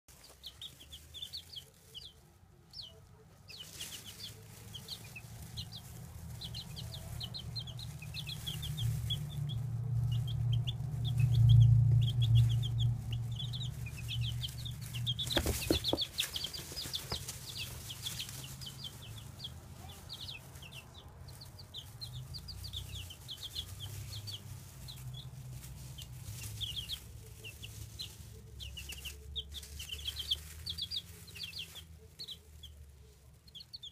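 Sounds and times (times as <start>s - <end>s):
baby chicks peeping: 0.1s - 33.9s
low rumble: 4.5s - 28.3s
sharp knocks: 15.2s - 16.2s.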